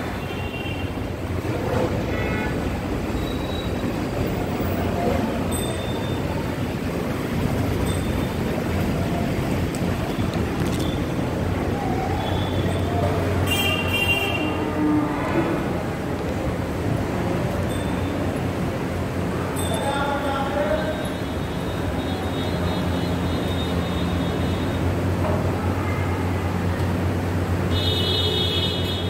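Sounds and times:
cow shed background din: 0:12.3 - 0:16.0.

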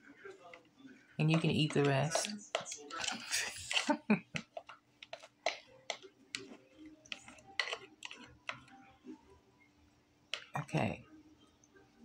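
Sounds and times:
spatula scraping mixing bowl: 0:00.5 - 0:08.8.

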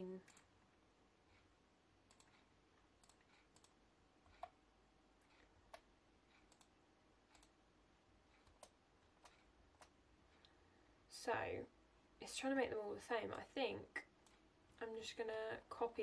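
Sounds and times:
computer mouse clicks: 0:02.1 - 0:04.6, 0:05.2 - 0:07.6, 0:08.3 - 0:10.6.

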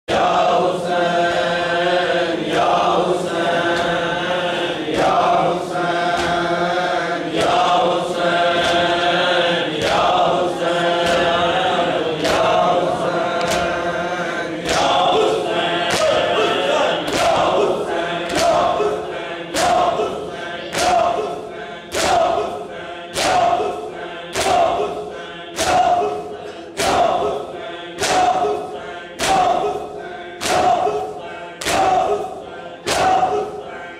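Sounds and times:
men chanting in unison: 0:00.1 - 0:33.9
hands slapping chests: 0:06.1 - 0:06.5, 0:08.5 - 0:09.0, 0:11.0 - 0:11.4, 0:12.1 - 0:12.7, 0:13.3 - 0:13.8, 0:14.6 - 0:16.2, 0:17.0 - 0:17.7, 0:18.3 - 0:18.9, 0:19.5 - 0:20.1, 0:20.7 - 0:21.3, 0:21.9 - 0:22.5, 0:23.1 - 0:23.7, 0:24.3 - 0:24.9, 0:25.6 - 0:26.1, 0:26.8 - 0:27.4, 0:28.0 - 0:28.6, 0:29.2 - 0:29.8, 0:30.4 - 0:33.5.

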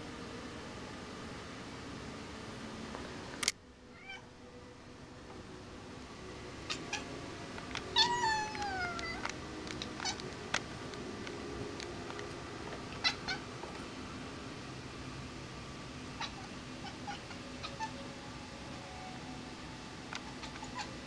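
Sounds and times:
steady background hum: 0:00.0 - 0:21.0
sharp click: 0:03.4 - 0:03.6
cat chirping: 0:03.9 - 0:04.2, 0:06.7 - 0:07.1, 0:07.9 - 0:09.2, 0:09.8 - 0:10.2, 0:12.9 - 0:13.5, 0:16.1 - 0:18.0, 0:20.1 - 0:21.0.

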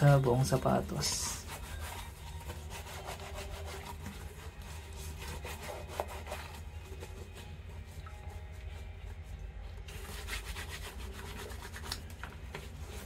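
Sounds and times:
hands rubbing lather into sneaker: 0:09.9 - 0:13.0.

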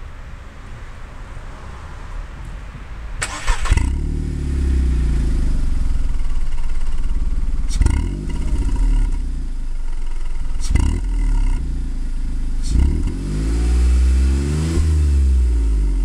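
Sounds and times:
car engine revving: 0:03.2 - 0:16.0
exhaust blips: 0:03.2 - 0:16.0.

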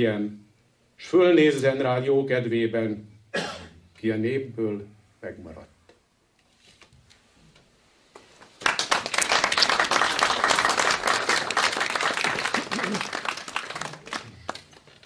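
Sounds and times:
crowd applauding: 0:08.6 - 0:15.0.

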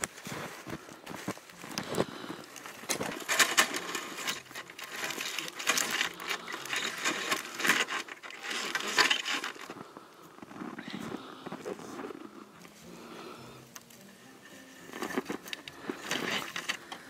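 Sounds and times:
boots crunching in snow: 0:00.0 - 0:06.1, 0:08.6 - 0:13.6.

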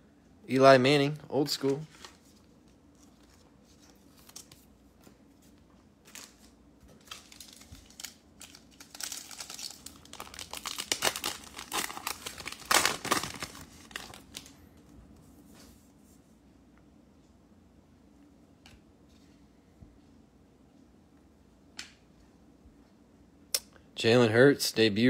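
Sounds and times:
foil wrapper crinkling and tearing: 0:06.1 - 0:14.6.

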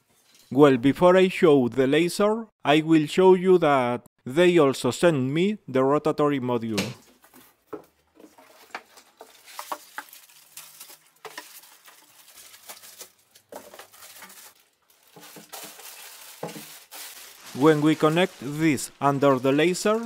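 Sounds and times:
plastic bag rustling: 0:08.2 - 0:20.0.

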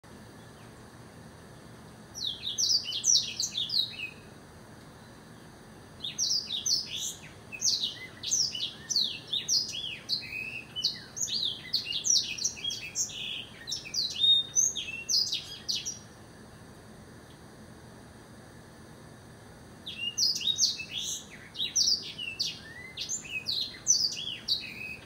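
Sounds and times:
bird twittering song: 0:01.6 - 0:04.3, 0:05.0 - 0:16.6, 0:19.8 - 0:25.0.

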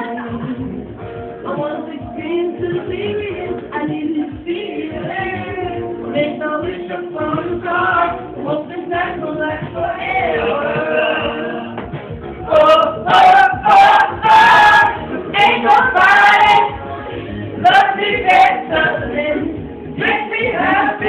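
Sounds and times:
music with singing: 0:00.0 - 0:21.0
close voices: 0:12.5 - 0:21.0.

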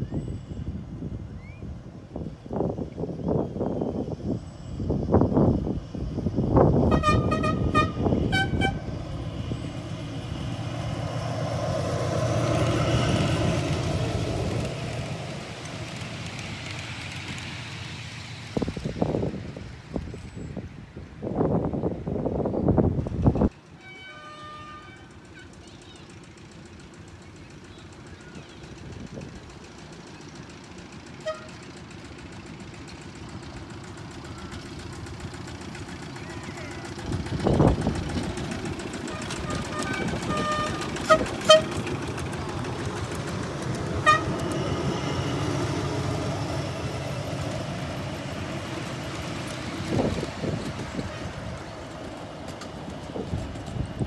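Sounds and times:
train wheels rumbling on rails: 0:00.0 - 0:54.0
miniature locomotive engine chugging: 0:01.7 - 0:21.8, 0:22.4 - 0:54.0
train horn toots: 0:06.9 - 0:09.0, 0:23.8 - 0:25.5, 0:31.2 - 0:31.6, 0:39.1 - 0:41.9, 0:44.0 - 0:44.6.

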